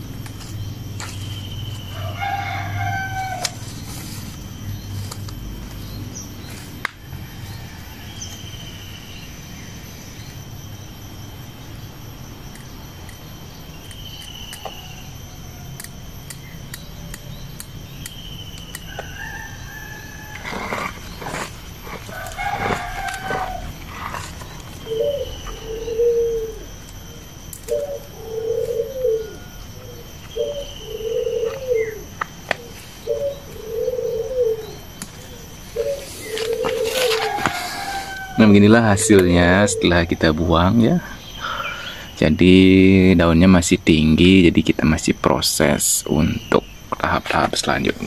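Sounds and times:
birds calling: 0.0s - 48.0s
sharp clicks: 15.8s - 19.2s.

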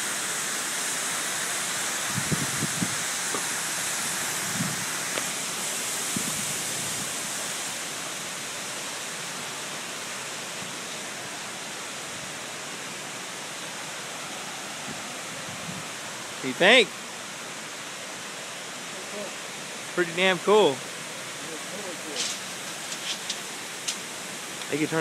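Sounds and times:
foam spraying hiss: 0.0s - 12.6s, 18.9s - 25.0s.

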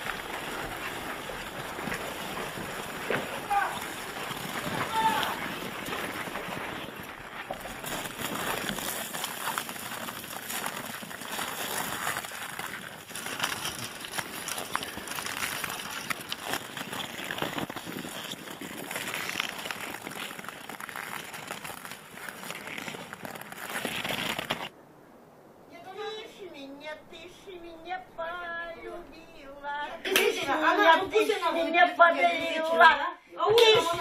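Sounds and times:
hooves crunching in snow: 0.0s - 24.7s.

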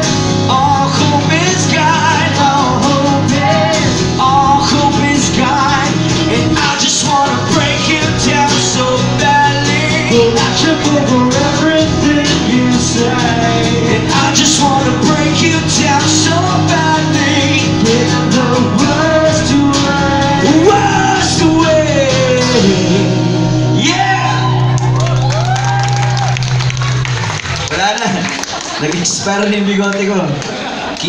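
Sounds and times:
man singing: 0.0s - 24.8s
strummed acoustic guitars: 0.0s - 25.3s.

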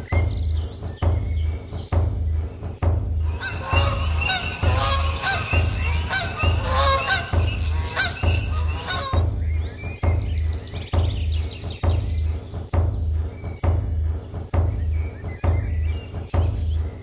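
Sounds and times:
low drum beat: 0.0s - 17.0s
geese honking: 3.2s - 9.4s.

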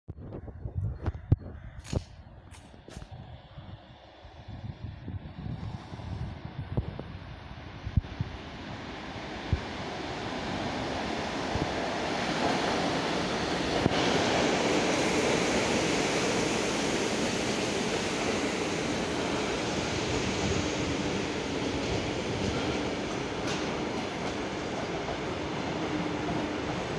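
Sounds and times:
train rolling noise: 1.9s - 26.9s.

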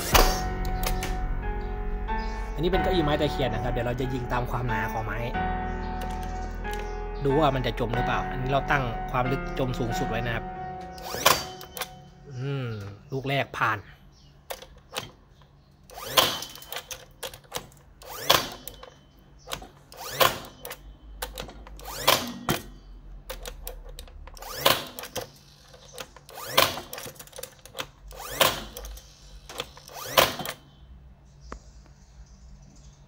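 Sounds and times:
nailer firing into wood: 0.0s - 1.2s, 11.0s - 11.9s, 15.9s - 18.9s, 19.5s - 20.7s, 21.3s - 22.8s, 24.3s - 25.3s, 26.3s - 27.2s, 28.1s - 30.6s.

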